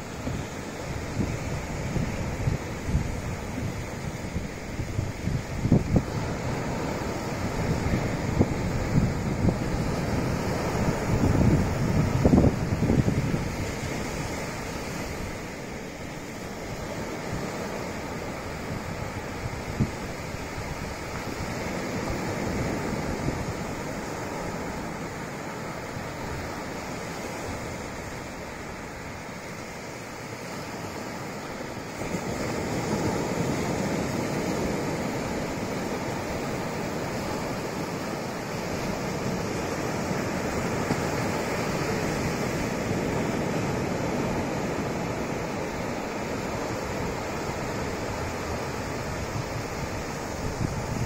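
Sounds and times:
ocean waves breaking on beach: 0.0s - 51.0s.

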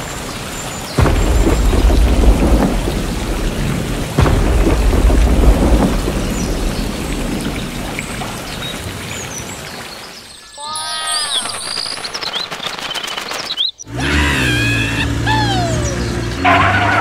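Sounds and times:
heavy rain falling: 0.0s - 17.0s
sharp thunderclap: 1.0s - 9.2s
thunder rumbling: 1.0s - 9.6s.

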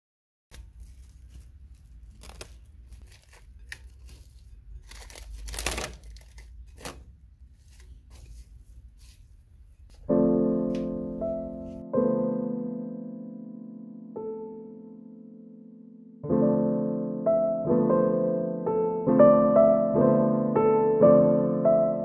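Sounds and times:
cling film crinkling and tearing: 0.5s - 8.4s
piano music: 9.9s - 22.0s.

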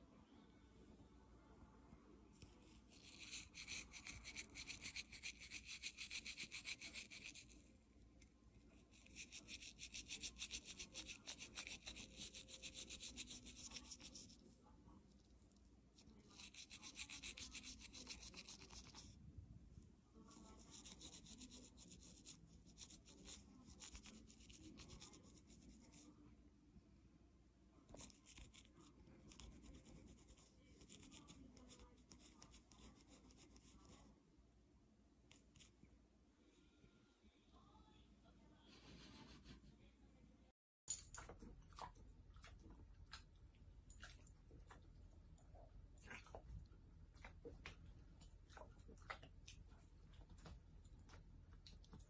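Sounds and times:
toothbrush scrubbing teeth: 2.4s - 7.8s, 8.5s - 19.2s, 20.2s - 26.1s, 27.9s - 34.1s.

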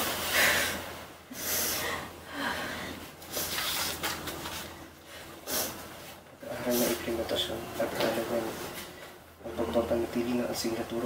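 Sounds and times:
person breathing: 0.2s - 3.6s.

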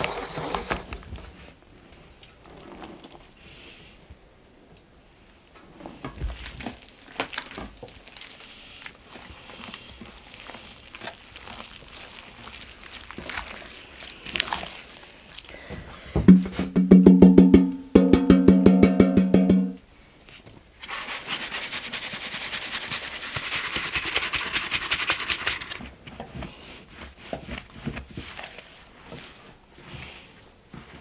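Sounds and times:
hands patting flour: 6.2s - 31.0s
flour sifting hiss: 6.3s - 16.2s, 20.8s - 31.0s
wooden sieve rattling: 23.1s - 25.9s.

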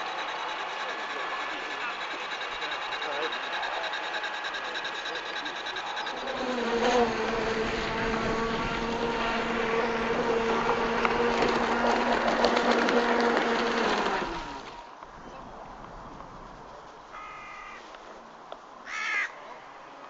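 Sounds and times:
model boat motor buzzing: 0.0s - 14.9s.

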